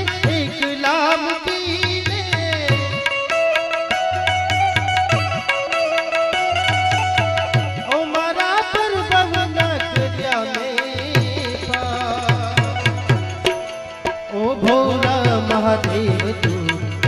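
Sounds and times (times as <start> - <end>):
person singing: 0.0 - 4.2, 7.7 - 13.4, 14.3 - 17.0
harmonium: 0.0 - 17.0
tabla beating a steady rhythm: 0.0 - 17.0.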